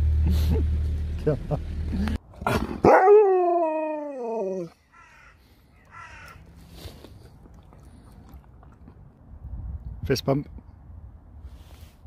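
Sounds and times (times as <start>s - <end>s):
dog howling: 2.8s - 4.8s.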